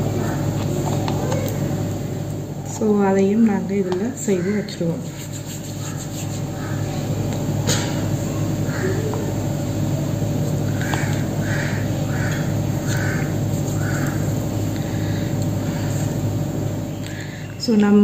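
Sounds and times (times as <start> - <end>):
steady low hum: 0.0 - 18.0
crow cawing: 4.2 - 4.8, 6.6 - 7.0, 8.7 - 9.3, 10.7 - 15.9.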